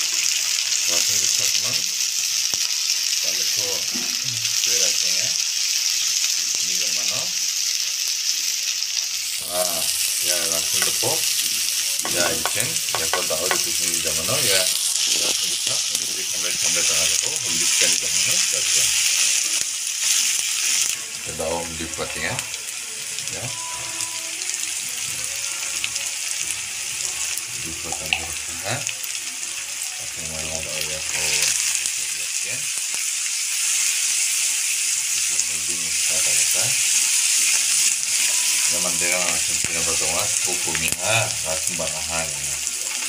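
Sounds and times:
onions sizzling in hot oil: 0.0 - 43.0
wooden spoon stirring: 10.6 - 13.8.

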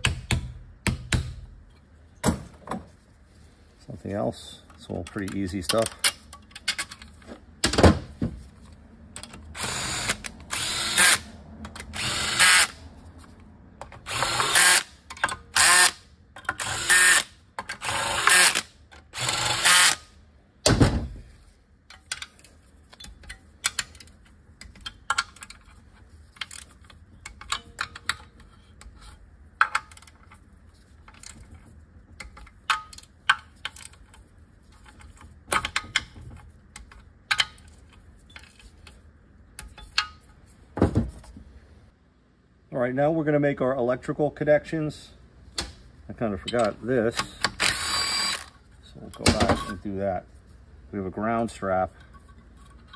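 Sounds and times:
cordless drill bursts: 9.6 - 11.2, 11.9 - 12.8, 14.1 - 14.9, 16.6 - 18.6, 19.2 - 20.0, 47.6 - 48.5.

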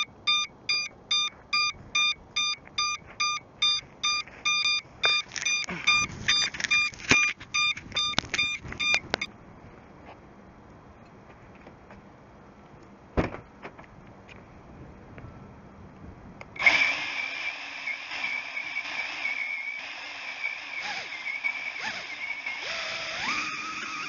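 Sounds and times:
quadcopter motors whining: 16.6 - 24.0.

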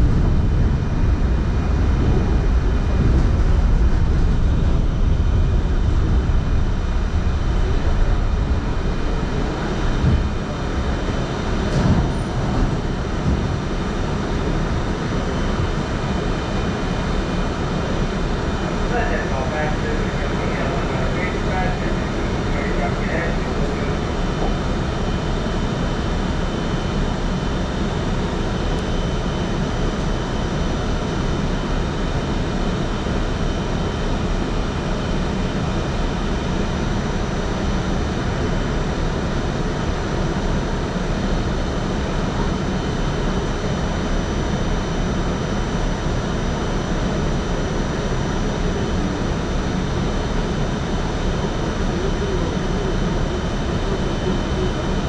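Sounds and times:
train wheels rumbling: 0.0 - 26.2.

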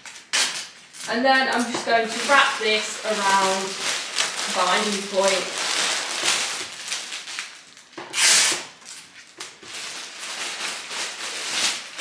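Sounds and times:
sticky tape pulled off roll: 0.0 - 1.1, 8.0 - 9.7
cellophane rustling: 0.0 - 12.0.

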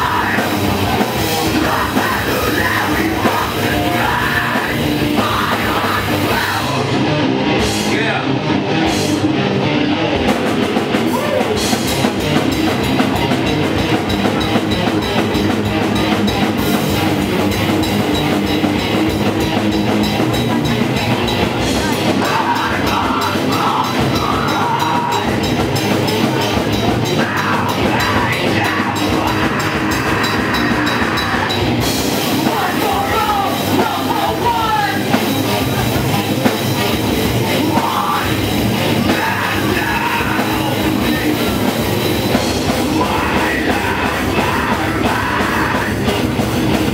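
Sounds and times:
distorted electric guitar: 0.0 - 46.9
drum kit: 0.0 - 46.9
singer shouting into microphone: 11.0 - 11.7, 32.4 - 36.0.

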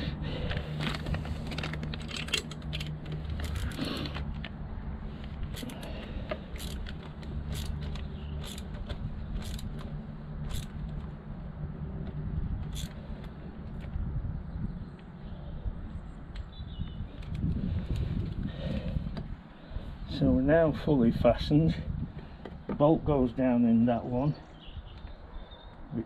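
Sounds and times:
socket ratchet clicking: 6.5 - 8.8, 9.4 - 10.8, 12.7 - 13.0.

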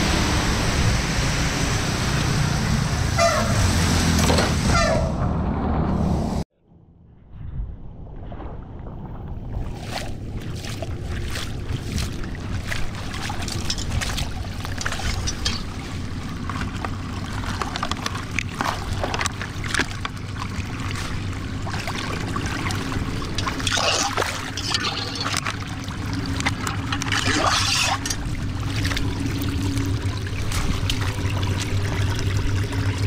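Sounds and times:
water trickling into a drain: 11.3 - 33.0.

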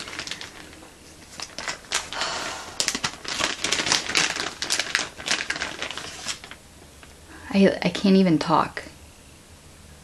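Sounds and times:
plastic packaging crinkling: 0.0 - 7.2.

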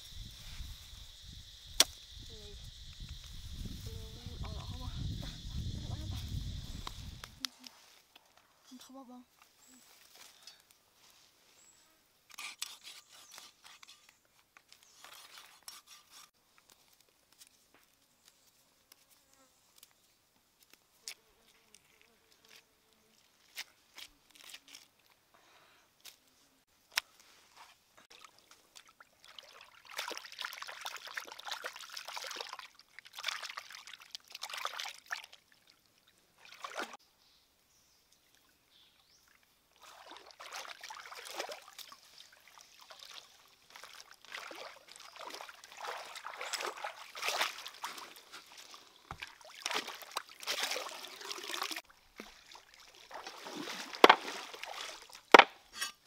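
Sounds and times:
water sloshing and trickling: 28.0 - 37.0, 39.2 - 55.3.

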